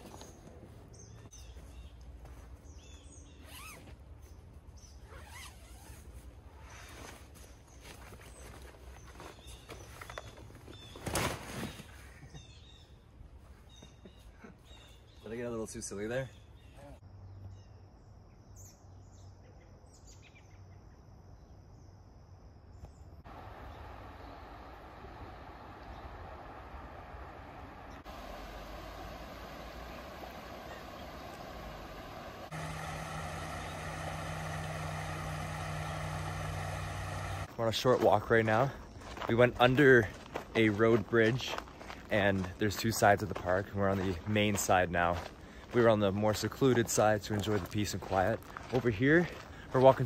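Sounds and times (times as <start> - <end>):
zipper sweeps: 3.4 - 3.9, 5.0 - 7.2
camping gear being handled: 3.4 - 4.4, 5.0 - 12.3
high insect drone: 23.3 - 37.5
steady low rumble: 23.3 - 37.7.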